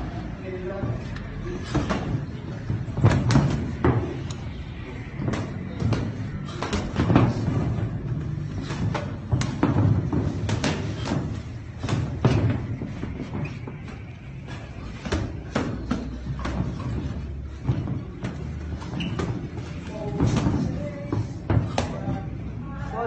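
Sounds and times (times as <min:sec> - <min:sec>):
footwork on ring canvas: 0:00.0 - 0:23.0.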